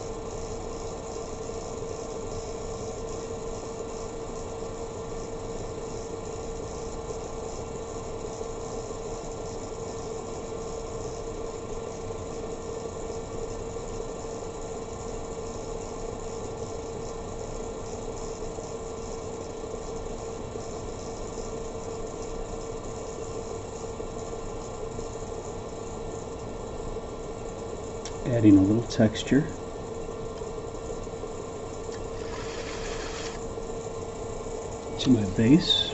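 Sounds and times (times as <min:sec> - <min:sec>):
pottery wheel motor humming: 0:27.2 - 0:35.9.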